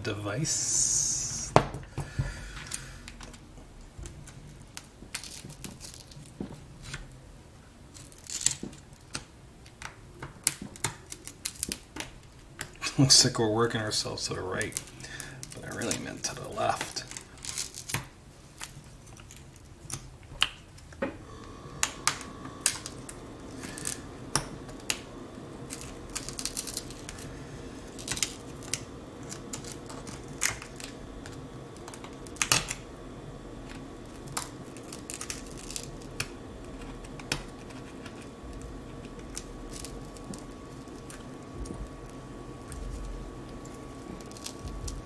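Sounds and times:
pry tool clicking and crackling: 28.0 - 32.8.

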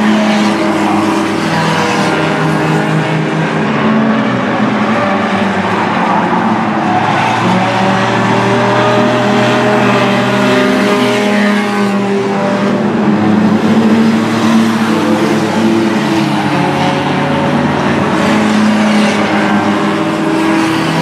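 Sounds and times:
race car engines droning: 0.0 - 21.0.

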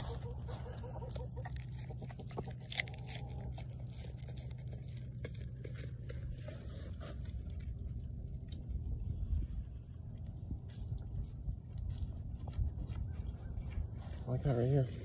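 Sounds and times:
goat chewing leafy greens: 0.0 - 15.0
low steady hum: 0.0 - 15.0.

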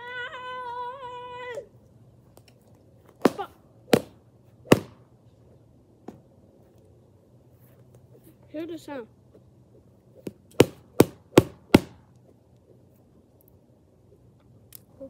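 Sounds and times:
fists hitting punching bag: 4.7 - 5.0.

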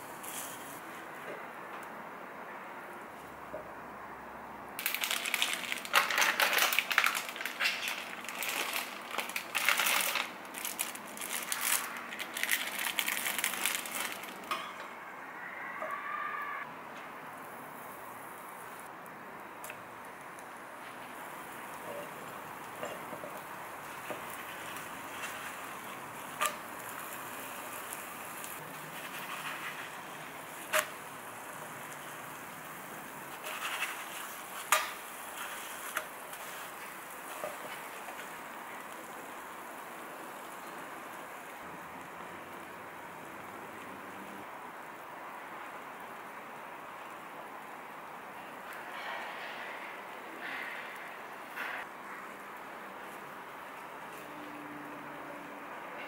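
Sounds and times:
pancake sizzling in a pan: 21.1 - 44.4.

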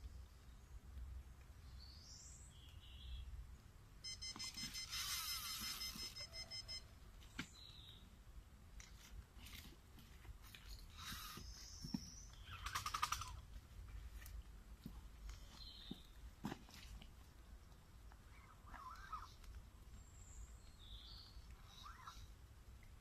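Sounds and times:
electronic bite alarm beeping: 4.0 - 6.9
bird chirps: 11.0 - 13.4.

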